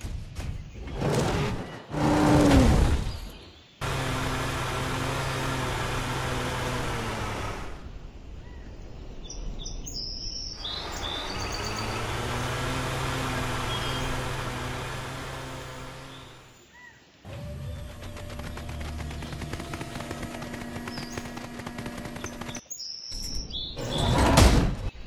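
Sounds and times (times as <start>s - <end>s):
birds chirping: 0.6s - 3.9s, 6.4s - 25.0s
low engine hum: 3.8s - 7.9s, 10.7s - 16.5s, 17.3s - 22.6s.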